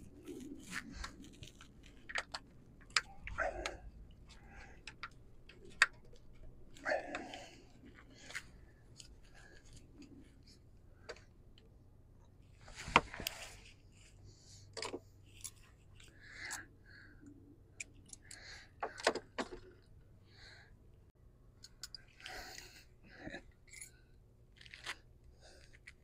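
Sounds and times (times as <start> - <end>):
tools and wiring clicking: 0.0 - 7.6, 14.7 - 16.7, 17.7 - 19.9, 21.6 - 25.0.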